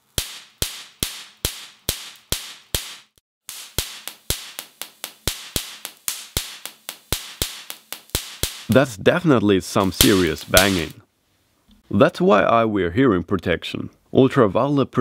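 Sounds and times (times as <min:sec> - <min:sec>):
electric spark bangs: 0:00.0 - 0:09.0, 0:09.7 - 0:11.0.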